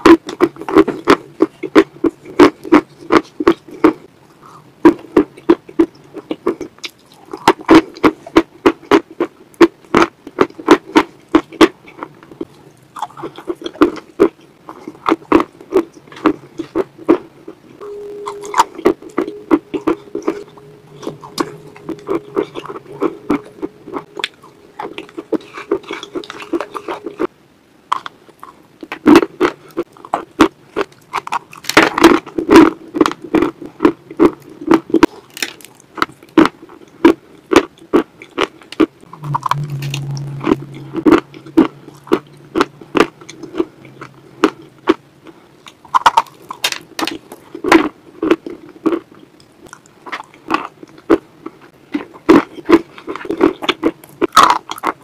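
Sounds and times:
crunchy wet chewing: 0:00.0 - 0:17.6, 0:27.9 - 0:39.1, 0:40.5 - 0:55.0
steady low hum: 0:16.0 - 0:28.8, 0:38.8 - 0:48.2.

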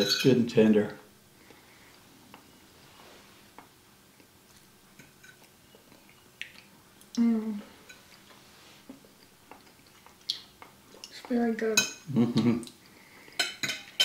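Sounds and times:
chewing: 0:03.6 - 0:07.2, 0:07.8 - 0:11.3
person humming mmm: 0:07.1 - 0:07.7.

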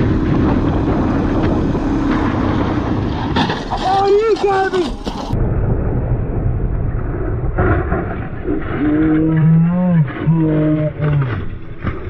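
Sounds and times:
motorcycle engine: 0:00.0 - 0:05.4
road noise: 0:00.0 - 0:05.5.

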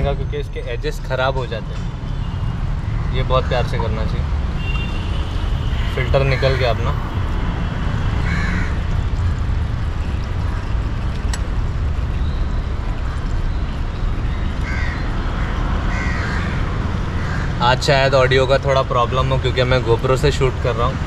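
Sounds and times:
crow cawing: 0:05.6 - 0:06.8, 0:08.2 - 0:08.8, 0:14.6 - 0:17.6.

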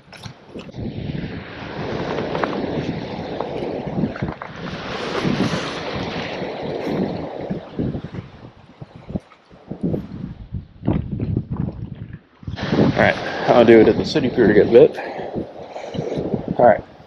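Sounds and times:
surf washing: 0:00.0 - 0:10.5, 0:12.3 - 0:17.0
wind rushing over microphone: 0:00.0 - 0:17.0.

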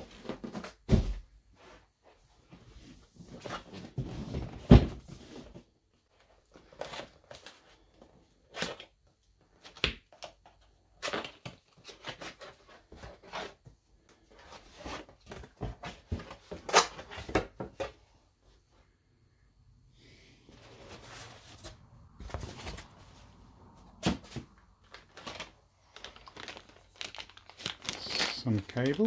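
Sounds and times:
cardboard boxes scraping and knocking: 0:00.0 - 0:05.8, 0:12.0 - 0:18.0, 0:20.5 - 0:24.6
cardboard rustling: 0:20.5 - 0:29.0.

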